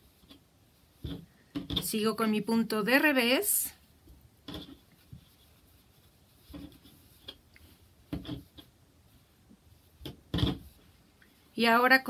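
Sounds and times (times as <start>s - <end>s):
hands rubbing wool: 0.0s - 12.0s.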